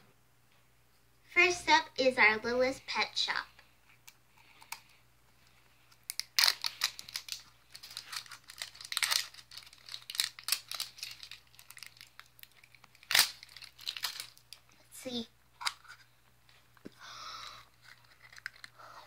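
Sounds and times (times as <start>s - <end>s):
plastic wrapper crinkling and tearing: 4.5s - 14.8s, 17.7s - 19.0s.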